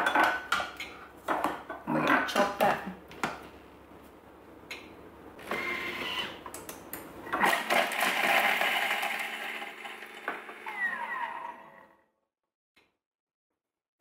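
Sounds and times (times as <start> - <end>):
food processor blades whirring: 7.3 - 11.9.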